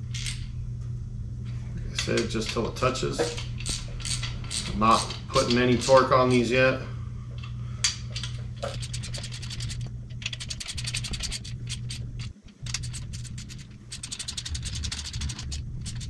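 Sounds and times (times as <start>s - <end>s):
ratchet wrench clicking: 3.6s - 6.0s, 8.6s - 16.0s.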